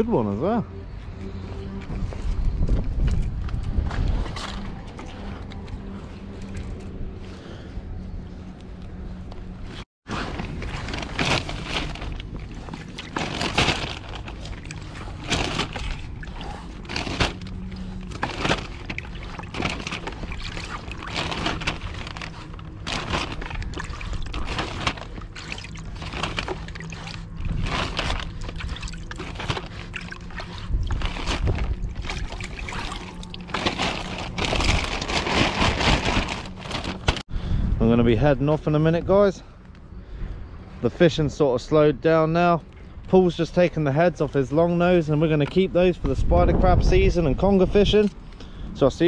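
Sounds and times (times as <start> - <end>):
plastic bag rustling: 10.1 - 37.3
water splashing in a bucket: 10.3 - 37.2.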